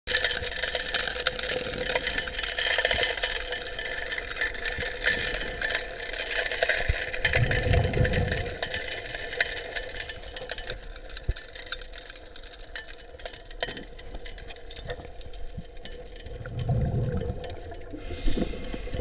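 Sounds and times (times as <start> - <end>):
engine and pump underwater: 3.6 - 10.2, 14.0 - 19.0
gravel clicking in suction nozzle: 6.6 - 10.8, 16.2 - 19.0.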